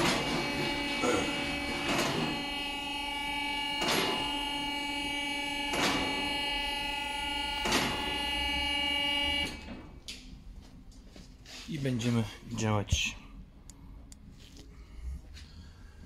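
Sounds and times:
vehicle lift motor whine: 0:00.0 - 0:10.6.

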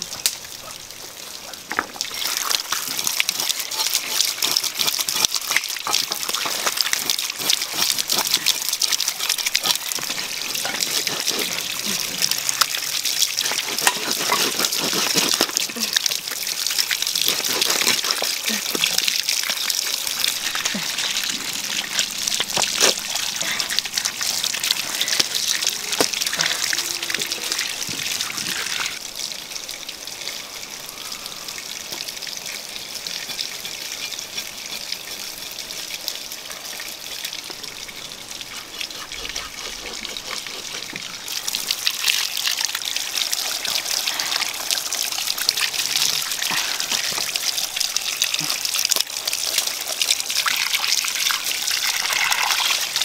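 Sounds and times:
water pouring and splashing: 0:00.0 - 0:53.0.

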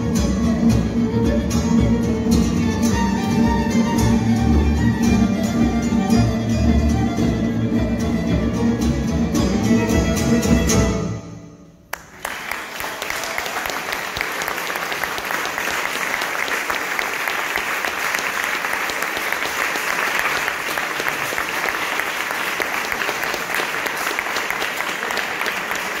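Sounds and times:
audience applause: 0:11.9 - 0:26.0.

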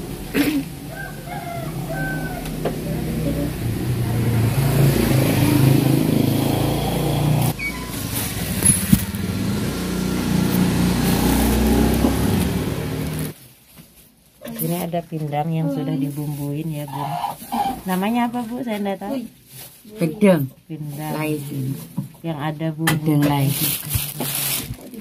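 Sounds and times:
vehicle engine rumbling: 0:00.0 - 0:13.4.

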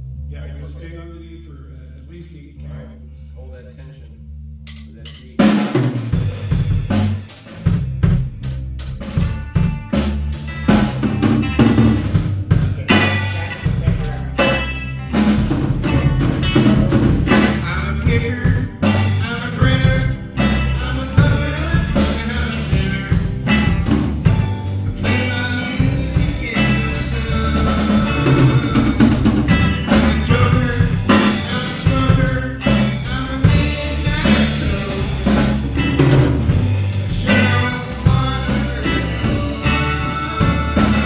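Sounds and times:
bass guitar: 0:00.0 - 0:41.0
drum kit beat: 0:04.7 - 0:41.0
electric guitars: 0:05.7 - 0:41.0
person singing: 0:12.5 - 0:15.2, 0:15.9 - 0:41.0.

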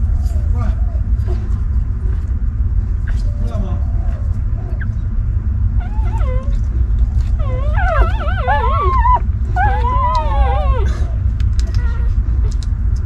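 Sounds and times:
steady low rumble: 0:00.0 - 0:13.0
puppies crying and whining: 0:03.0 - 0:12.7.

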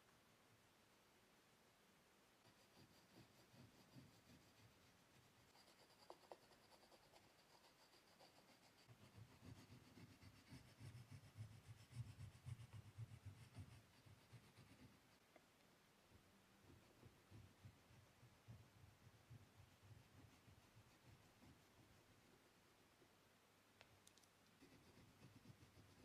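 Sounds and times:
pastel scratching on paper: 0:02.4 - 0:15.2, 0:19.3 - 0:22.0, 0:24.6 - 0:26.0.

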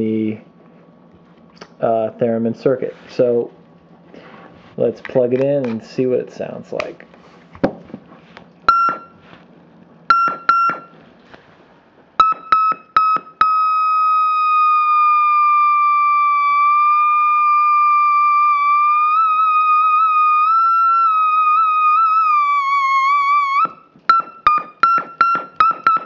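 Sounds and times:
short electronic beeps: 0:08.7 - 0:09.2, 0:10.1 - 0:11.0, 0:12.2 - 0:14.2
wavering electronic tone: 0:12.2 - 0:26.0.

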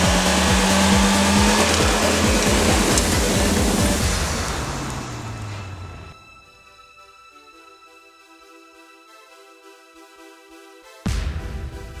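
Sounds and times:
soft background music: 0:05.4 - 0:12.0.

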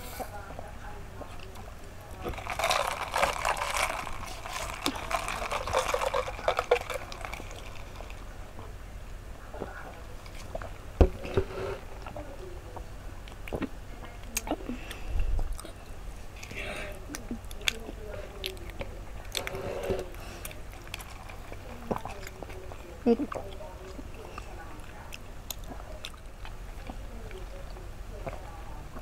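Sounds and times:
slurping through straws: 0:02.2 - 0:08.2, 0:19.4 - 0:22.2.

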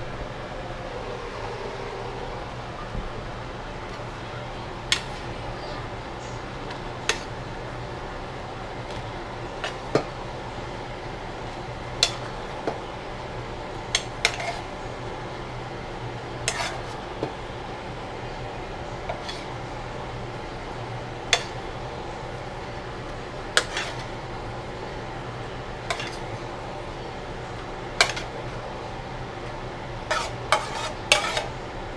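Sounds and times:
metal utensil scraping frying pan: 0:04.9 - 0:05.3, 0:07.0 - 0:07.4, 0:12.0 - 0:12.5, 0:13.9 - 0:14.7, 0:16.4 - 0:17.0, 0:19.0 - 0:19.7, 0:21.3 - 0:21.7, 0:23.5 - 0:24.2, 0:25.8 - 0:26.3, 0:28.0 - 0:28.5, 0:30.0 - 0:31.6.

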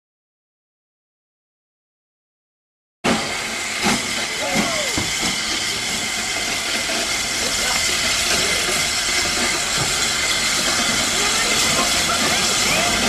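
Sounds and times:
steam locomotive hissing steam: 0:03.0 - 0:13.0
faint voices: 0:04.2 - 0:13.0.

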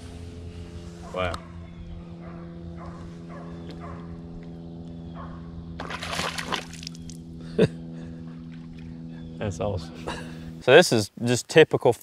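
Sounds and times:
low steady hum: 0:00.0 - 0:11.5
fish splashing into water: 0:05.8 - 0:07.2.

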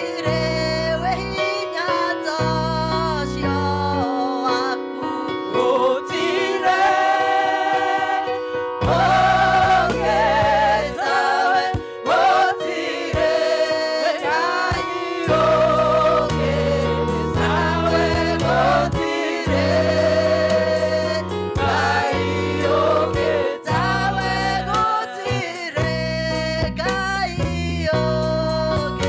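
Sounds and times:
instrumental accompaniment: 0:04.0 - 0:29.0
choir singing gospel: 0:05.5 - 0:26.0
deep bass line: 0:08.8 - 0:11.0, 0:15.3 - 0:29.0.

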